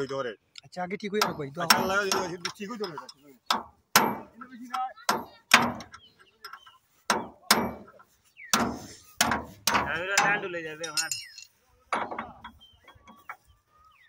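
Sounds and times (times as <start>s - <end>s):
hammer striking metal spanner: 1.2s - 4.3s, 8.6s - 12.2s.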